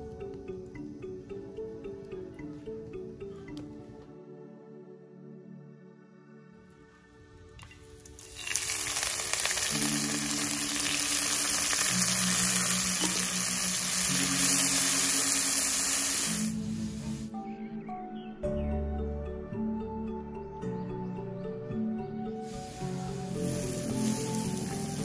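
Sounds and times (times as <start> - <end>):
soft background music: 0.0 - 25.0
vegetables sizzling in a wok: 8.1 - 17.3, 22.5 - 25.0.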